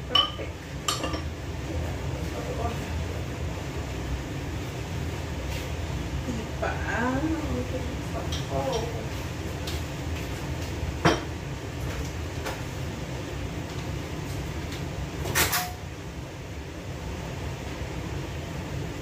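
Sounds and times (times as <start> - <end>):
steady low hum: 0.0 - 19.0
kitchen knocks and clatter: 11.0 - 11.3.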